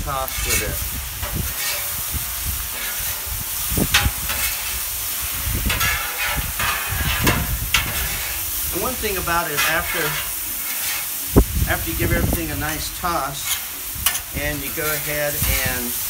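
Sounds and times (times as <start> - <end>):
sauce sizzling on a griddle: 0.0 - 16.0
metal spatulas scraping steel: 0.2 - 2.0, 2.7 - 3.3, 3.9 - 4.8, 5.7 - 11.2, 12.8 - 16.0.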